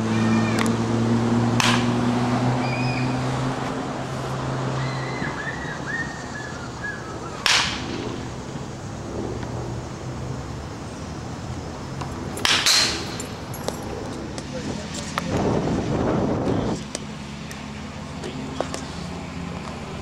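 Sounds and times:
low engine hum: 0.0 - 20.0
baseball bat cracking ball: 1.5 - 2.3, 7.4 - 8.4, 12.1 - 13.8.

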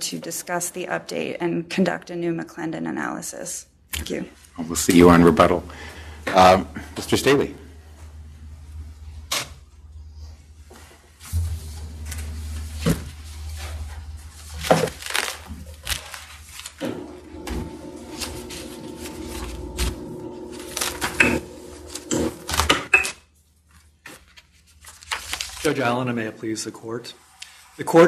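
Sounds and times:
steady hum: 5.1 - 15.2, 16.8 - 22.7
papers rustling and knocking: 11.3 - 23.0.

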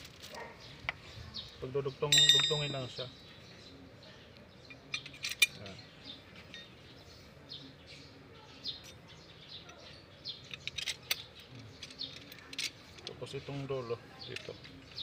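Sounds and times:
steel rod sections clinking: 2.1 - 3.0, 4.7 - 5.8.

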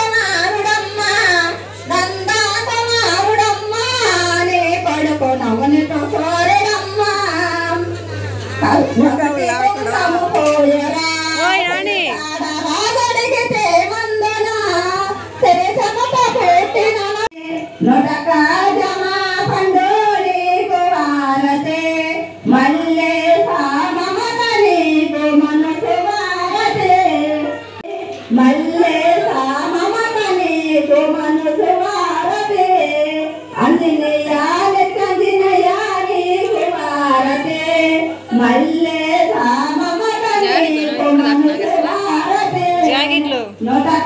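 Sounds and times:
woman singing long notes: 39.5 - 43.8.

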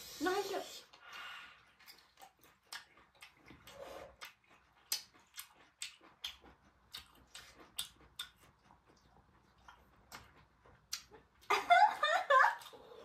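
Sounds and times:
chewing and crunching: 1.0 - 11.5
sharp mouth clicks: 1.9 - 8.5.

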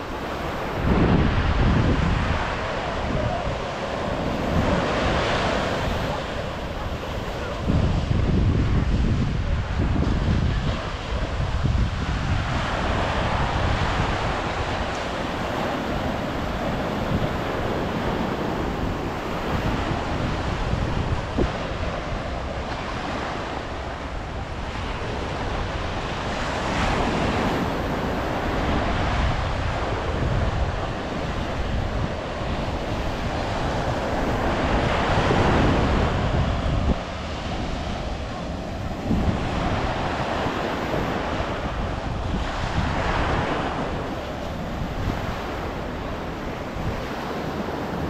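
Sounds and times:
surf breaking on a beach: 0.0 - 48.0
wind buffeting the microphone: 0.0 - 48.0.

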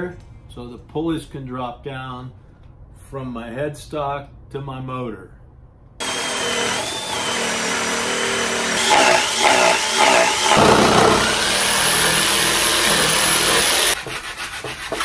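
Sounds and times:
cordless drill boring plywood: 6.0 - 14.1
jigsaw cutting plywood: 6.0 - 15.0.

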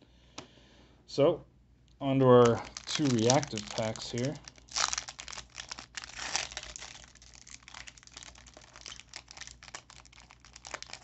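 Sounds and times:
card pack wrappers crinkling and tearing: 2.4 - 11.0.

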